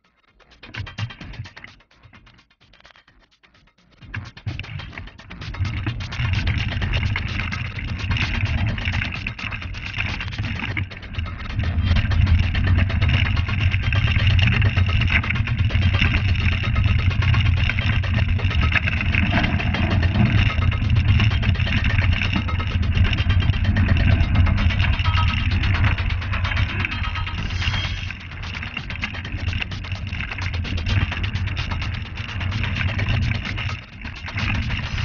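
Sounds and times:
bike rattling over rocks: 4.7s - 35.0s.

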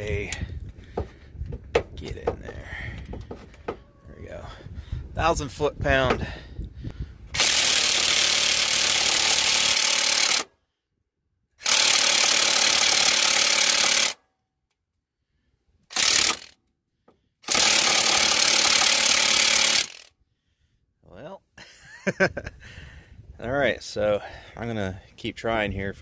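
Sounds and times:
impact wrench hammering: 11.6s - 14.2s, 15.9s - 16.5s, 17.4s - 20.1s.

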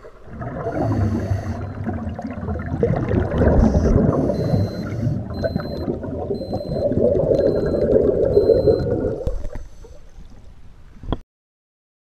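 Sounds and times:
scuba bubbles gurgling underwater: 0.0s - 10.4s
faint high beep: 3.7s - 9.0s.

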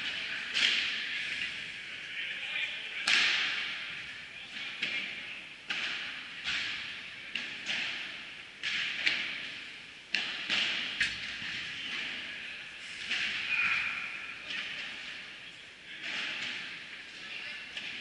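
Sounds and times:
balls struck and bouncing in hall: 0.0s - 18.0s.

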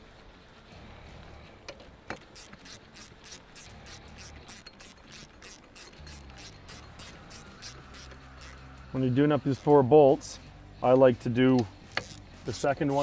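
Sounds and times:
socket ratchet clicking: 2.1s - 8.8s, 11.8s - 13.0s.

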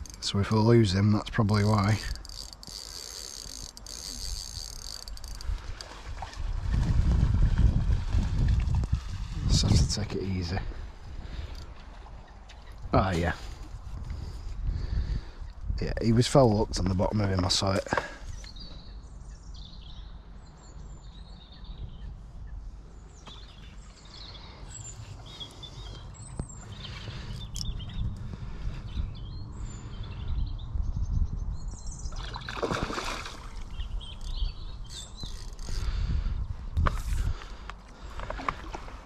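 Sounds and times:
wind rumble on microphone: 3.5s - 17.6s, 18.3s - 39.0s
small birds chirping: 16.7s - 38.2s.

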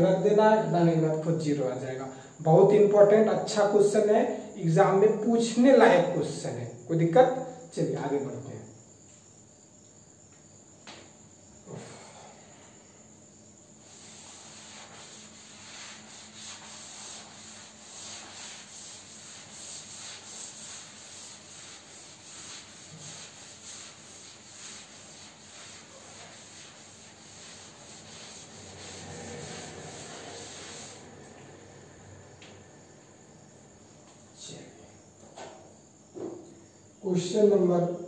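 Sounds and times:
cloth rubbing on blackboard: 13.8s - 31.4s.

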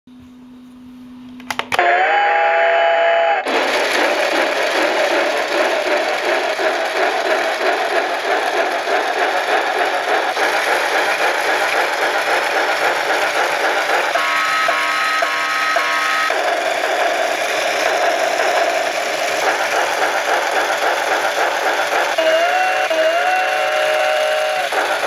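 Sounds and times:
steam whistle blast: 1.8s - 3.5s, 13.9s - 16.6s, 22.1s - 25.0s
steam train chuffing: 1.8s - 25.0s.

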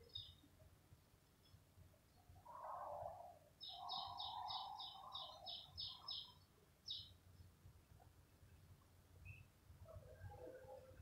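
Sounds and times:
small bird chirping: 0.0s - 0.4s, 3.6s - 7.2s.

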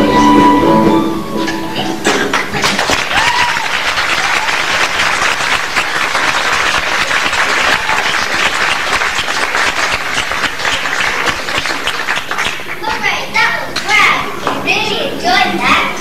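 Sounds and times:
audience applause: 2.0s - 13.1s.

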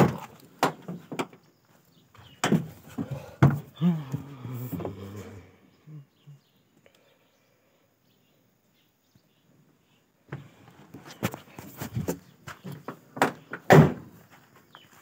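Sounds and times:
knocks and thumps climbing down: 0.0s - 1.4s, 2.2s - 5.1s.

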